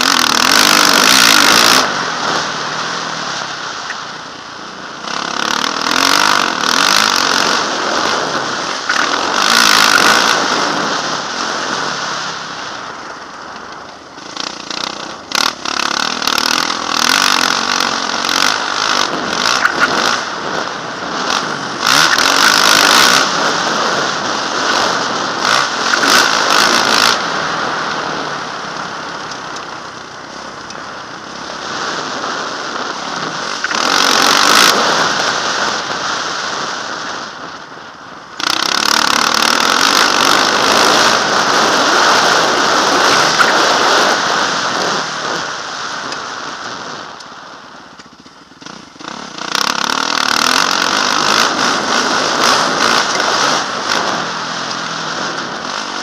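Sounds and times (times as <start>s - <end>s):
motocross bike engine revving: 0.0s - 47.2s, 47.9s - 56.0s
wind noise: 0.0s - 56.0s.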